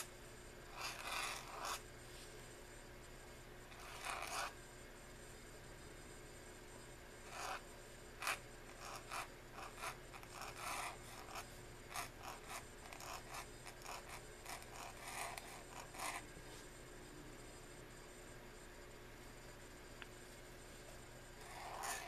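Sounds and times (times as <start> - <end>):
pen nib scratching paper: 0.7 - 1.8, 3.7 - 4.5, 7.3 - 7.6, 8.2 - 16.2, 21.4 - 22.0.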